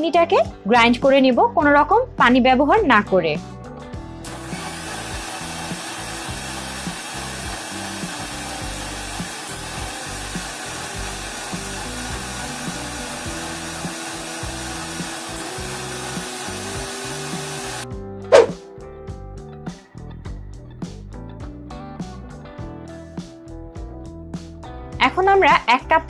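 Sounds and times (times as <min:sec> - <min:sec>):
mixer grinder motor whirring: 0:04.2 - 0:17.9
blades churning fruit in jar: 0:04.3 - 0:17.8.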